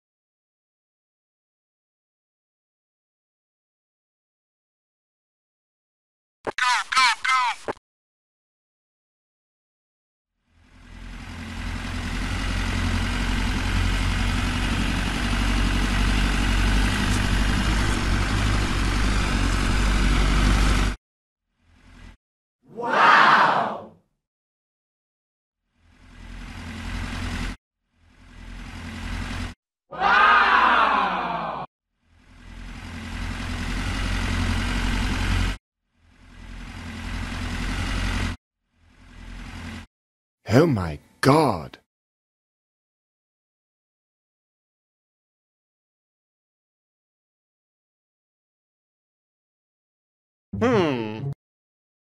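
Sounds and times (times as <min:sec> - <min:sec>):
tractor engine rumbling: 0:10.6 - 0:21.0, 0:25.9 - 0:29.5, 0:32.1 - 0:38.3.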